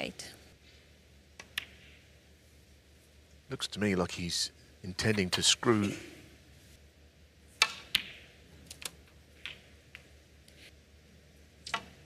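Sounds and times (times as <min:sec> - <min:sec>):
snooker balls clicking: 0:01.4 - 0:02.0, 0:07.6 - 0:10.6.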